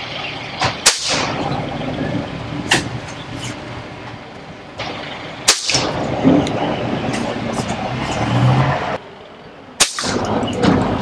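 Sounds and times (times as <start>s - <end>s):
pellets hitting steel target: 0.7s - 1.4s, 5.5s - 6.1s, 9.8s - 10.3s.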